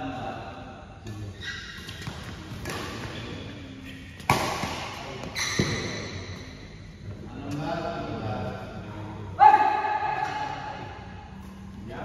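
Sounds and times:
racket hitting shuttlecock: 1.7 - 3.2, 4.2 - 6.0.

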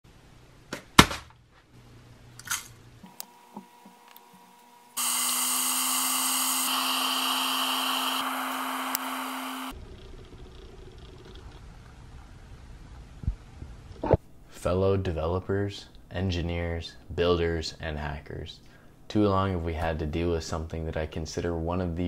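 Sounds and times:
electric kettle heating water: 3.0 - 9.8.

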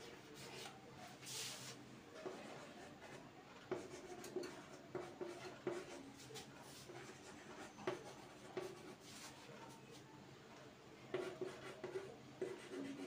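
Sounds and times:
chalk writing on chalkboard: 0.4 - 9.5, 11.1 - 13.0.

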